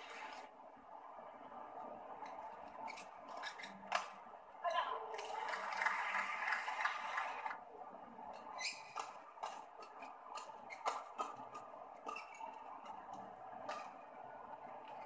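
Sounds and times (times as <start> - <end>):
crowd noise: 0.0 - 15.0
shoes squeaking: 2.8 - 4.1, 8.4 - 14.0
racket hitting shuttlecock: 8.8 - 12.9, 13.6 - 14.0.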